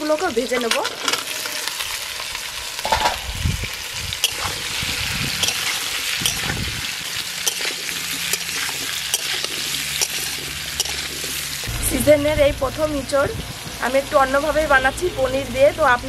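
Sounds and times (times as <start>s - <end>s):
food sizzling in hot oil: 0.0s - 16.0s
low thuds: 11.7s - 13.7s.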